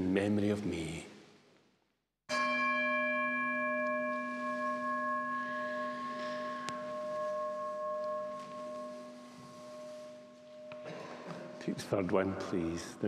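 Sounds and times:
altar bell ringing: 0:02.3 - 0:12.7.

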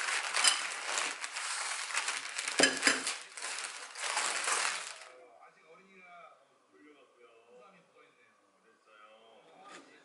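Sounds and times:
newspaper crinkling and rustling: 0:00.0 - 0:05.2.

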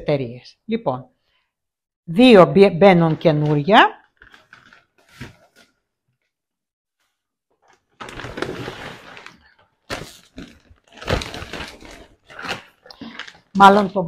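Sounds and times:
cardboard box scraping and rustling: 0:08.1 - 0:10.1.

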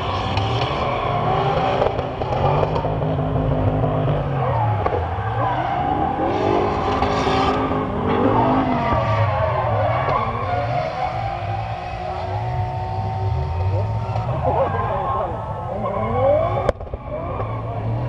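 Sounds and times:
car engines revving: 0:00.0 - 0:18.0.

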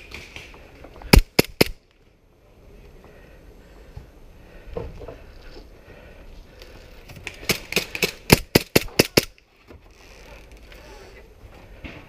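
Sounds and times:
airsoft pistol shots: 0:01.1 - 0:01.8, 0:07.5 - 0:09.3.

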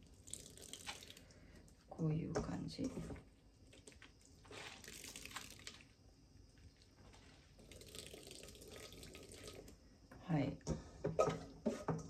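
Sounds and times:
wet crunching of cucumber by hand: 0:03.7 - 0:05.9.

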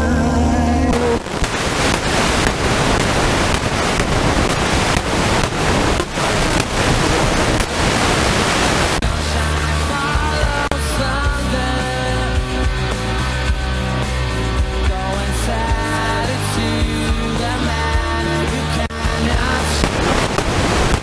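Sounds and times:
radio static hiss: 0:00.9 - 0:09.0, 0:19.5 - 0:21.0
radio music: 0:00.9 - 0:10.7, 0:19.0 - 0:21.0.

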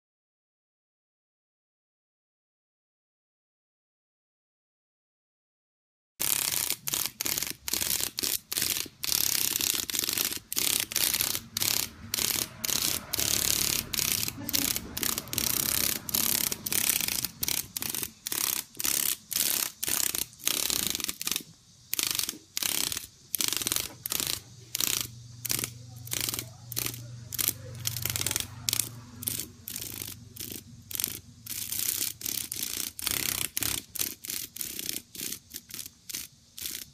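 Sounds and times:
cicada distress buzzing: 0:06.2 - 0:36.9.

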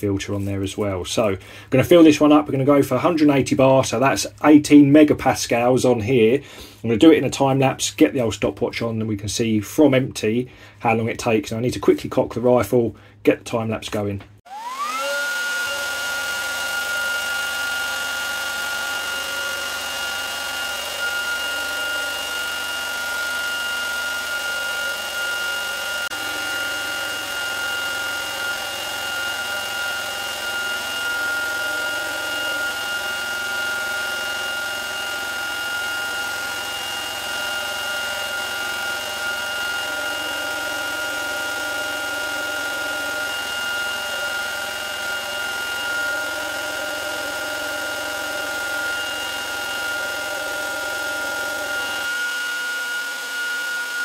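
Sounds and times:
air compressor whining: 0:14.5 - 0:54.0.

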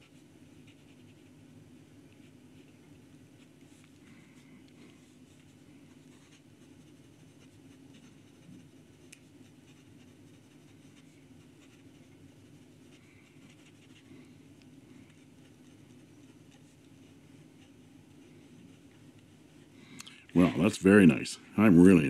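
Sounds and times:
pen nib scratching paper: 0:00.0 - 0:01.4, 0:04.9 - 0:14.2, 0:15.0 - 0:19.0
low steady hum: 0:00.0 - 0:22.0.

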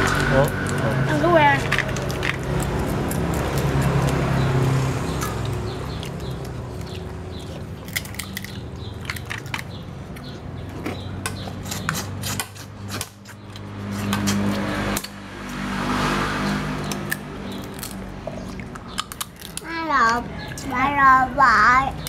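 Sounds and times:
shells cracking on plastic plate: 0:07.8 - 0:10.2, 0:18.6 - 0:19.7.

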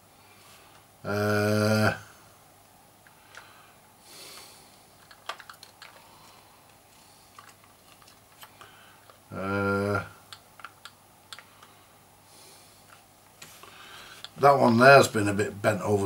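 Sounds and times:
plastic clicks and taps: 0:05.0 - 0:06.0.

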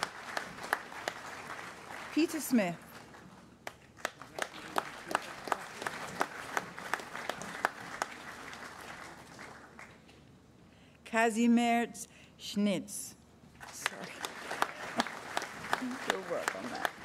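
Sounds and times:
person clapping close by: 0:00.0 - 0:01.6, 0:03.6 - 0:08.8, 0:13.8 - 0:17.0
audience applauding: 0:00.0 - 0:10.0, 0:13.6 - 0:17.0.

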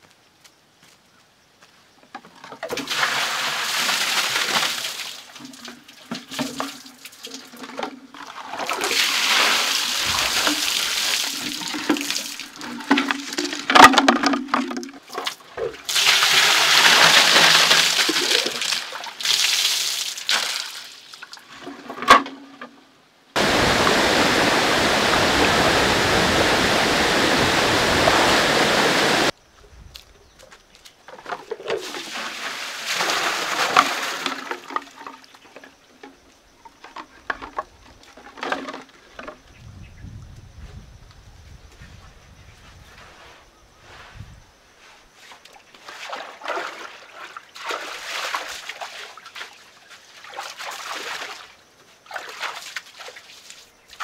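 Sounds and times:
water pouring and splashing: 0:02.6 - 0:22.0, 0:23.4 - 0:29.3, 0:31.2 - 0:36.2, 0:45.2 - 0:54.0
steady rush of water: 0:08.5 - 0:13.8, 0:23.4 - 0:29.3.

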